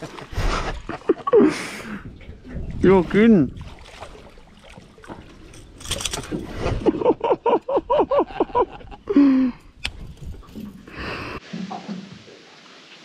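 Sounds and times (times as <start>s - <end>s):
man laughing heartily: 0.0s - 2.0s, 6.6s - 9.6s.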